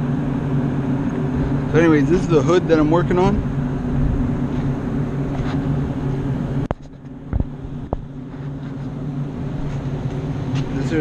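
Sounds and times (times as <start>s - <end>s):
ventilation units droning: 0.0s - 11.0s
wind noise on microphone: 3.0s - 8.3s.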